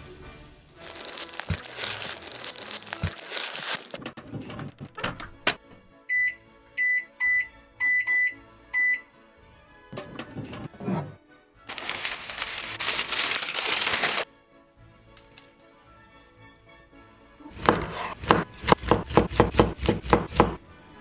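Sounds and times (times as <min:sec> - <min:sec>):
rustling crinkly noise: 0:00.8 - 0:04.0, 0:11.7 - 0:14.2.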